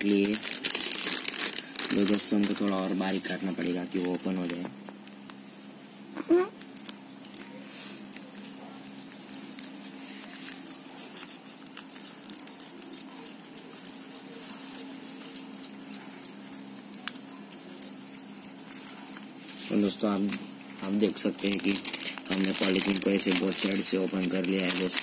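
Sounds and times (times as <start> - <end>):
scissors snipping plastic bag: 19.1 - 25.0.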